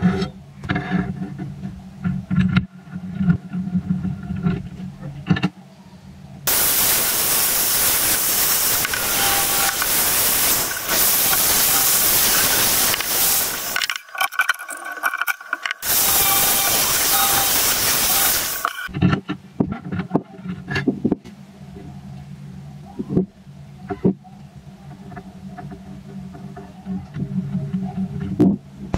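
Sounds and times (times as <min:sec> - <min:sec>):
metal scraping against metal: 0:07.6 - 0:19.1.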